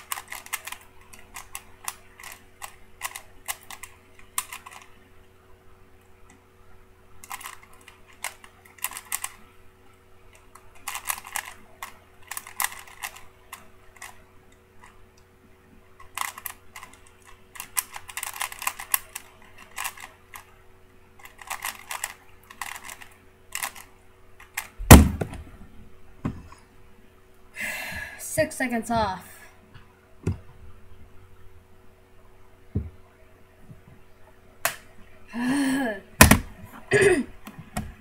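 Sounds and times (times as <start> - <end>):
puzzle cube plastic clicks: 0.0 - 5.0, 7.2 - 9.5, 10.3 - 15.0, 16.0 - 20.5, 21.2 - 25.3
cube put down thump: 24.8 - 25.5, 36.2 - 36.5.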